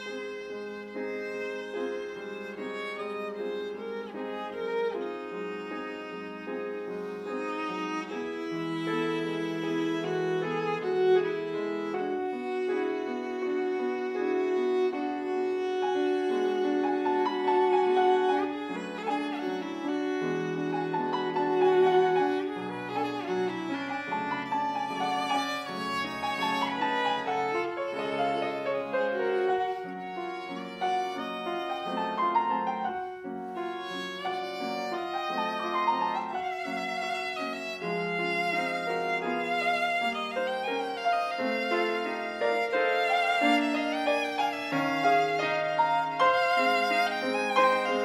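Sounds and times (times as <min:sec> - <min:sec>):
viola playing classical piece: 0:00.0 - 0:48.0.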